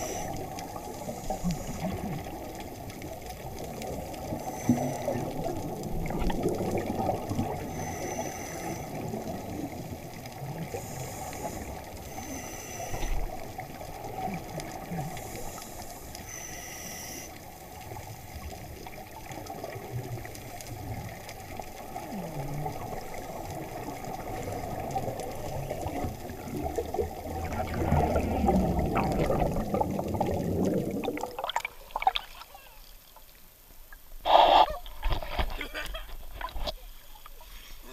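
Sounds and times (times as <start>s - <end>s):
bubbles gurgling underwater: 0.0s - 8.0s, 17.8s - 32.2s
underwater rush of water: 0.0s - 37.9s.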